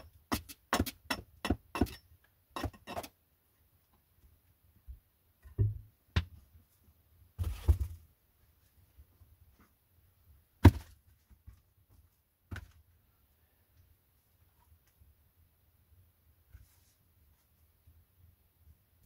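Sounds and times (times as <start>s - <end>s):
wooden thunks and knocks: 5.4s - 6.4s.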